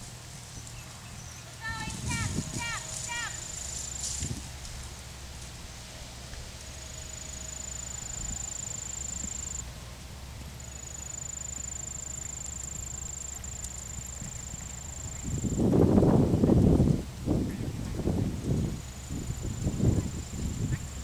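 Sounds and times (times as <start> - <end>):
horse hooves walking on sand: 0.0 - 21.0
low background rumble: 0.0 - 21.0
high-pitched whine: 2.0 - 16.3.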